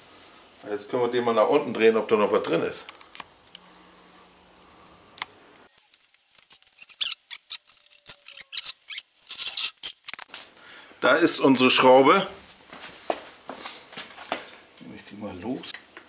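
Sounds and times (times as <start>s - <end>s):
faint hum: 0.0s - 5.8s.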